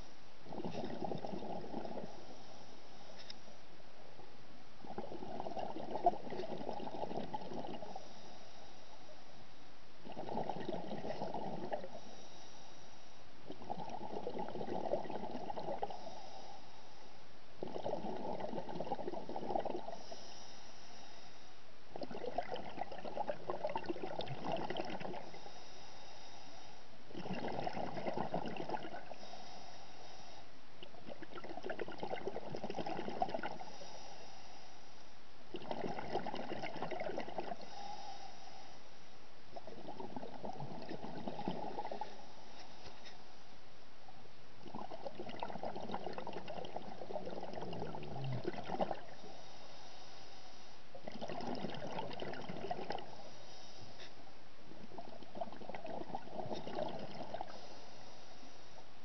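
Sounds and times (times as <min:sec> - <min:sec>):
exhaust bubbles underwater: 0:00.0 - 0:02.4, 0:04.8 - 0:08.2, 0:10.0 - 0:12.2, 0:13.4 - 0:16.3, 0:17.6 - 0:20.2, 0:21.9 - 0:25.5, 0:27.1 - 0:29.5, 0:30.8 - 0:33.9, 0:35.5 - 0:38.1, 0:39.5 - 0:42.3, 0:44.6 - 0:49.4, 0:50.9 - 0:53.3, 0:54.7 - 0:57.7
regulator hiss on inhale: 0:00.0 - 0:03.8, 0:07.8 - 0:09.8, 0:11.0 - 0:13.4, 0:15.8 - 0:17.4, 0:19.7 - 0:21.8, 0:25.0 - 0:27.0, 0:29.0 - 0:30.7, 0:33.4 - 0:35.3, 0:37.5 - 0:39.4, 0:40.8 - 0:43.8, 0:49.0 - 0:51.0, 0:52.9 - 0:54.5, 0:56.6 - 0:59.0.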